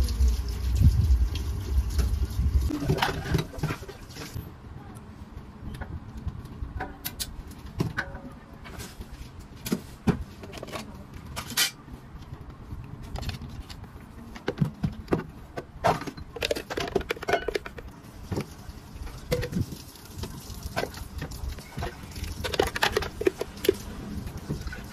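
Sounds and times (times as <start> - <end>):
plastic cups clicking on rubber mats: 13.1 - 18.5, 20.8 - 23.9.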